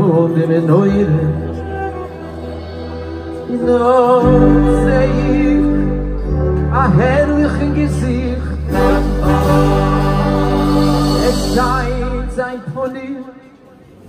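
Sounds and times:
live band playing: 0.0s - 12.8s
person singing: 0.0s - 13.1s.

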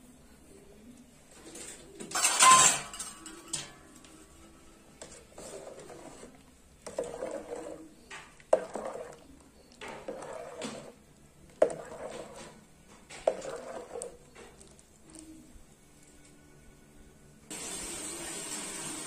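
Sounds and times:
ladle clinking against metal pot: 2.1s - 3.9s
liquid swishing: 4.2s - 15.7s.

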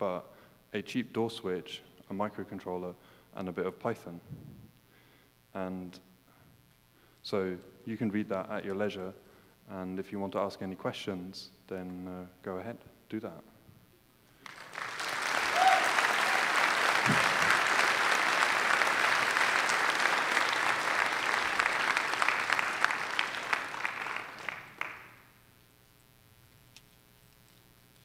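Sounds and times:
audience applauding: 14.4s - 25.3s.

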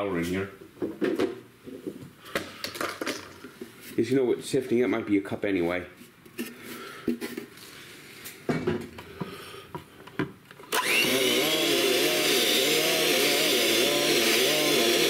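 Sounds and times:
electric mixer running: 10.7s - 15.0s.

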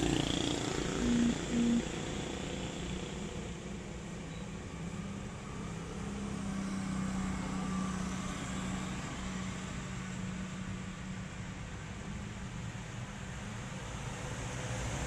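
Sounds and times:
vehicle passing: 0.0s - 2.4s
traffic engine hum: 0.0s - 4.2s.

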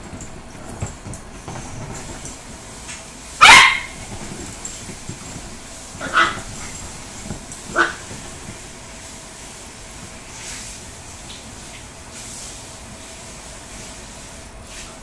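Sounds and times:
small dogs barking: 3.4s - 4.1s, 6.0s - 6.8s, 7.7s - 8.2s.

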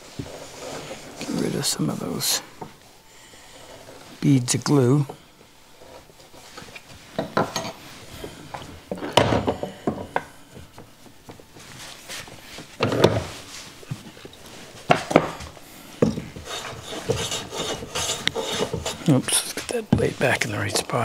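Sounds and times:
hand plane scraping wood: 16.0s - 21.0s.

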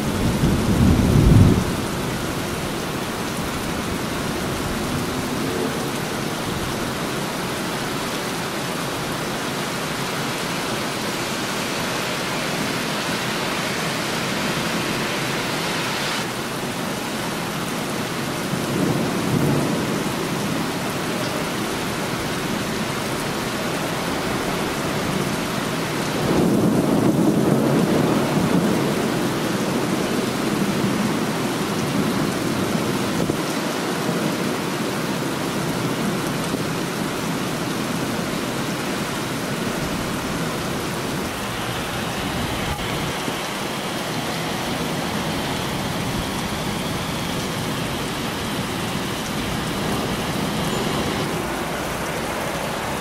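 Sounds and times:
thunder rumbling: 0.0s - 7.2s, 18.5s - 33.5s, 39.0s - 53.0s
heavy rain: 0.0s - 53.0s.

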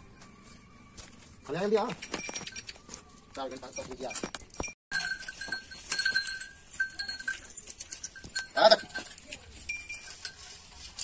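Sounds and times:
hand bell ringing: 4.9s - 11.0s.

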